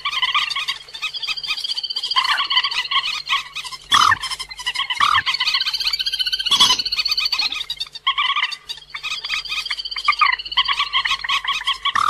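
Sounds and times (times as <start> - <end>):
recorded rail bird calls: 0.0 - 12.0.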